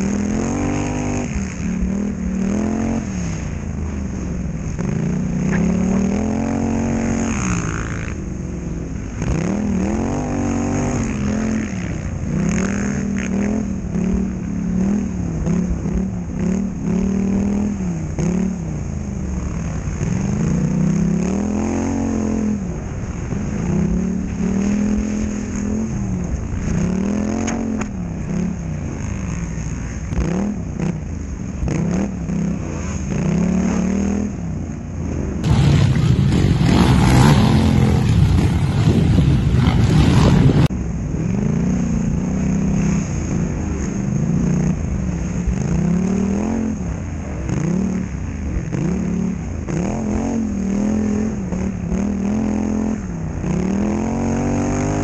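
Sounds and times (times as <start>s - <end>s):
quad engine revving: 0.0s - 3.0s, 4.8s - 8.2s, 35.4s - 40.7s.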